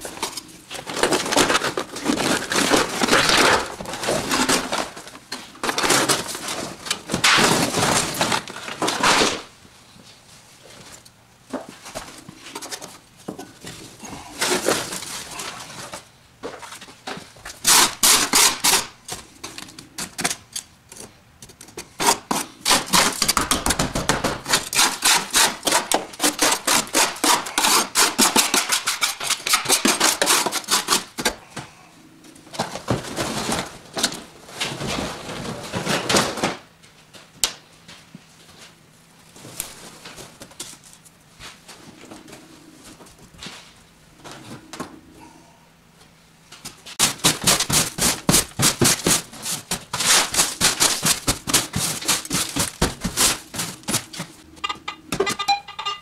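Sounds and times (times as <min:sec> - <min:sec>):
mat ripping and rustling: 0:46.9 - 0:54.4.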